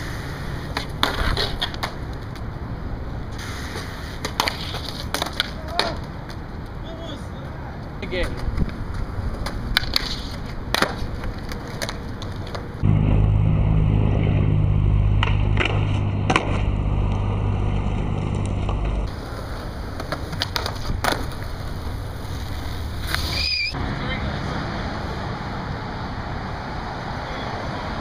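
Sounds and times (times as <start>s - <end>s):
skateboard wheels rolling on concrete: 0.0s - 12.9s, 15.2s - 28.0s
skateboard clacks: 0.1s - 2.5s, 3.7s - 7.1s, 8.1s - 12.8s, 18.2s - 23.3s
steady low rumble: 12.1s - 20.1s.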